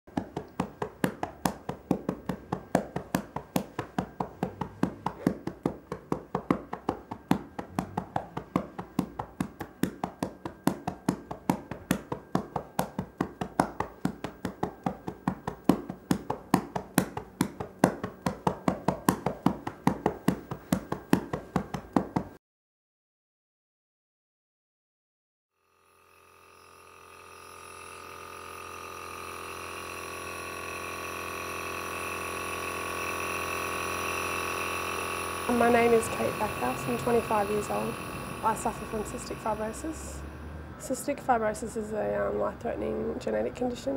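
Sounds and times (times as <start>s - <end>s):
sharp ticks: 0.1s - 22.3s, 35.4s - 40.2s.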